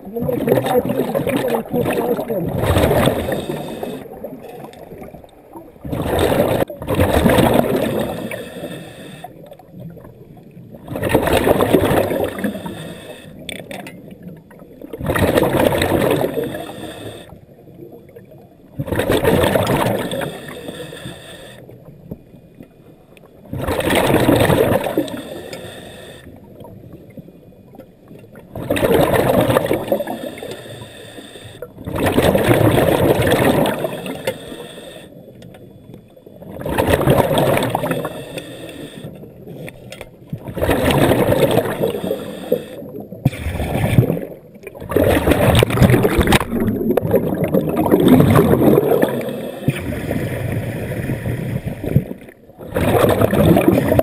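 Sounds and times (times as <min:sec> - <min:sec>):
diver exhaling bubbles: 0:00.0 - 0:13.4, 0:14.8 - 0:17.3, 0:18.8 - 0:20.9, 0:23.5 - 0:25.8, 0:28.5 - 0:30.6, 0:31.8 - 0:34.6, 0:36.4 - 0:39.6, 0:40.4 - 0:54.0.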